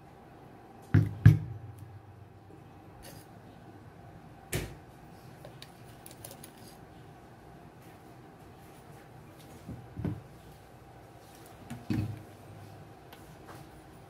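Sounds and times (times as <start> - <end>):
room hum: 0.0 - 14.0.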